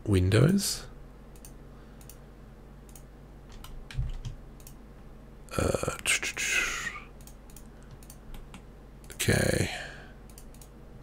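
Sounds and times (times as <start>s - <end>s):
computer keyboard and mouse clicks: 1.4s - 2.2s, 2.9s - 4.8s, 7.2s - 9.2s, 10.3s - 10.8s.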